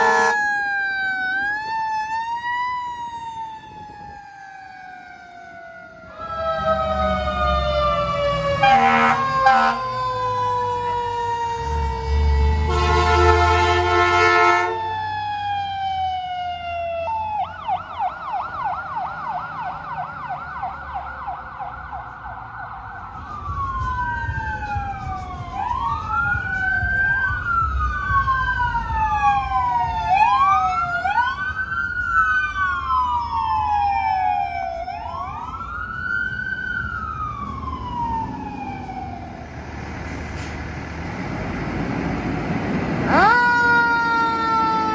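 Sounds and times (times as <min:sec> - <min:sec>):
air horn blasts: 0:00.0 - 0:00.4, 0:08.6 - 0:09.8, 0:12.7 - 0:14.8
yelp siren: 0:00.0 - 0:39.6, 0:43.0 - 0:44.9
fire truck siren winding down: 0:00.0 - 0:44.9
truck engines rumbling: 0:00.0 - 0:44.9
wail sirens rising and falling: 0:00.0 - 0:44.9.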